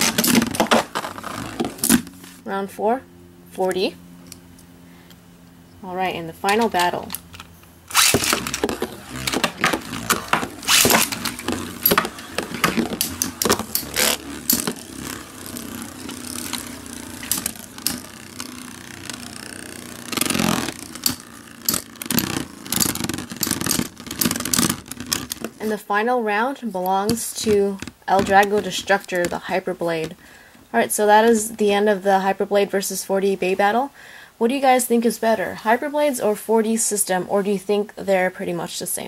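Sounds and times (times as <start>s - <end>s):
spinning tops clashing in plastic stadium: 6.4s - 25.7s.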